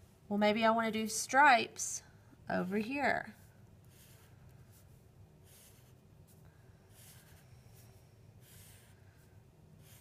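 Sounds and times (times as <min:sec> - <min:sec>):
low steady hum: 0:00.0 - 0:10.0
marker scratching on paper: 0:02.6 - 0:10.0.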